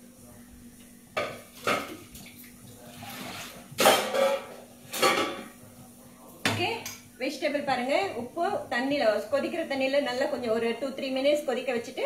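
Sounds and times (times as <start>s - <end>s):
dishes clattering: 1.2s - 2.1s, 2.9s - 5.6s.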